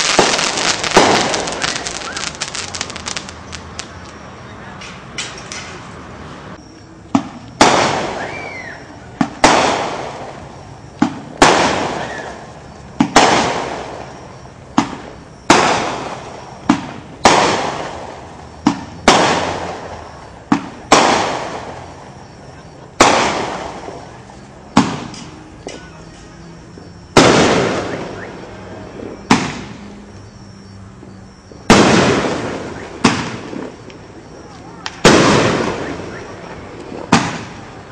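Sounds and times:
firework launch pops: 0.0s - 3.6s, 7.1s - 8.4s, 9.2s - 10.3s, 11.0s - 12.4s, 13.0s - 14.2s, 14.8s - 19.7s, 24.7s - 25.4s, 29.2s - 29.8s, 31.7s - 34.0s, 34.8s - 37.6s
fireworks bangs: 0.0s - 4.2s, 7.1s - 37.9s.

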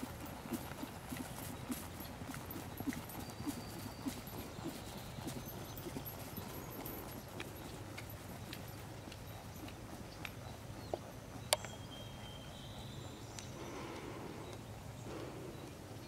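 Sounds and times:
horse hoofbeats on grass: 0.0s - 13.3s.

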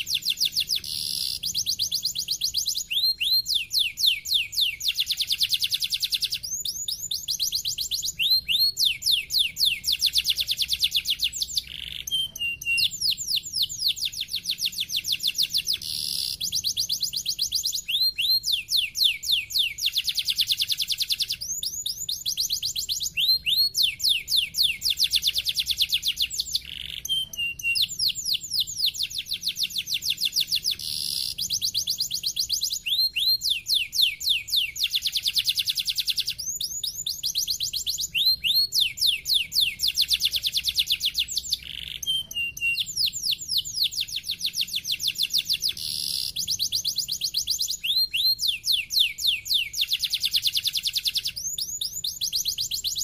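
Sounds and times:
canary singing trills: 0.0s - 53.0s.

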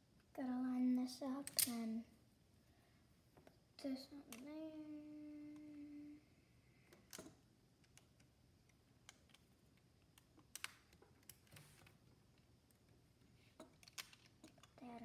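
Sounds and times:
plastic bricks clicking together: 1.4s - 1.7s, 9.0s - 11.5s, 13.6s - 14.8s.

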